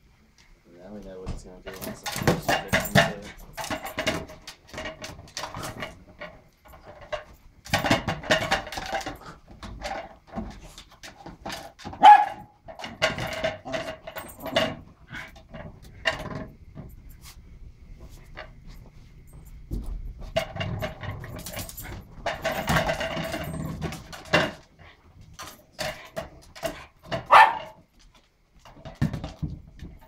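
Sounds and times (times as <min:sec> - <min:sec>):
small dog barking: 0:12.0 - 0:12.5, 0:27.3 - 0:27.8.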